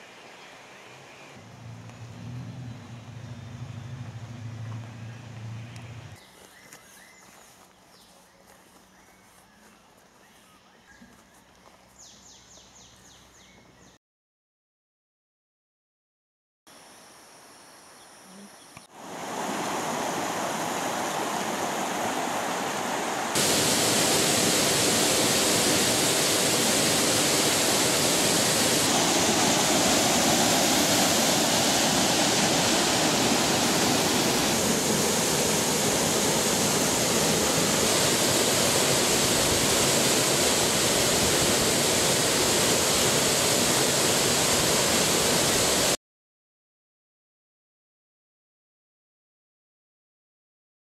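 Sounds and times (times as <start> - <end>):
waterfall crashing into a pool: 18.9 - 46.0.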